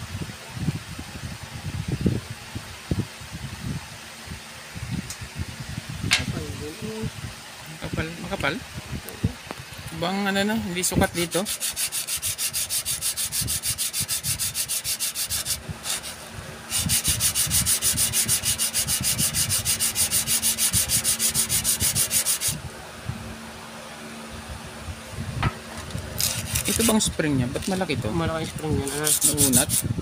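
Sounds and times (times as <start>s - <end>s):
motor brush scraping on sandpaper: 10.8s - 22.6s, 25.8s - 30.0s.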